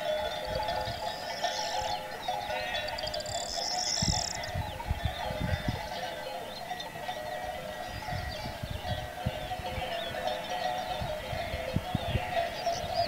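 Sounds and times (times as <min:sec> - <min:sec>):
birds chirping and trilling: 0:00.0 - 0:13.0
dense steady ringing tones: 0:00.0 - 0:13.0
sheep bleating: 0:02.5 - 0:03.0.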